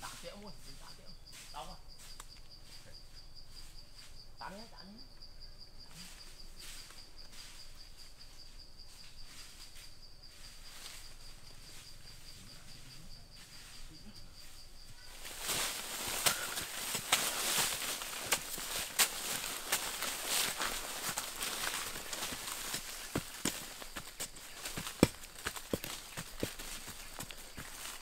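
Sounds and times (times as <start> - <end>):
high insect trill: 0.0 - 28.0
hand tool digging into dry soil: 15.1 - 28.0.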